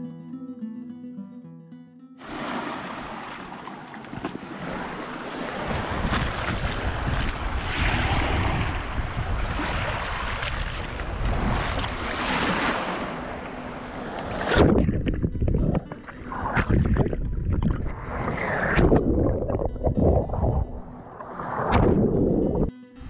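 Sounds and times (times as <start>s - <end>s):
small waves washing on stony shore: 2.2s - 14.8s
wind buffeting microphone: 4.1s - 22.7s.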